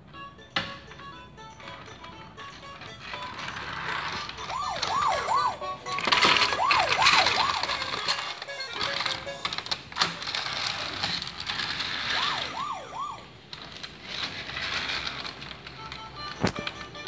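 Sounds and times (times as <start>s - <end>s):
toy electronic siren wailing: 1.8s - 9.5s, 11.7s - 13.3s.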